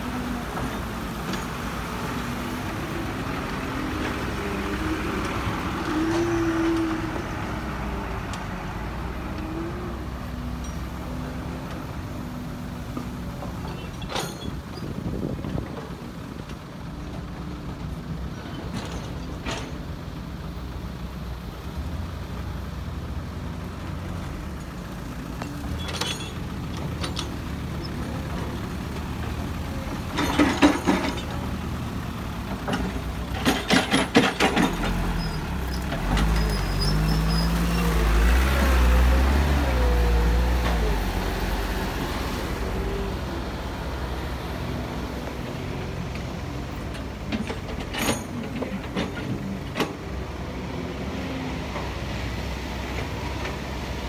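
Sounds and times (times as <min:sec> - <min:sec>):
heavy diesel engines running: 0:00.0 - 0:54.0
rapid metal clanks and knocks: 0:30.1 - 0:31.5, 0:32.6 - 0:35.3.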